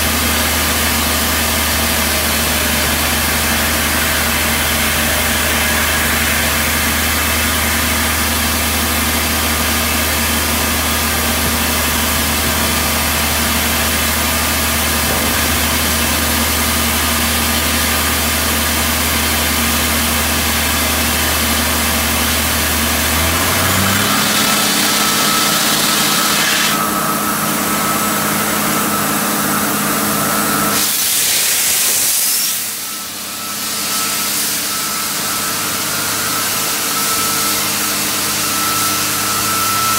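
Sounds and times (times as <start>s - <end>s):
drill rig engine running: 0.0s - 39.9s
loud rushing hiss: 30.7s - 32.9s.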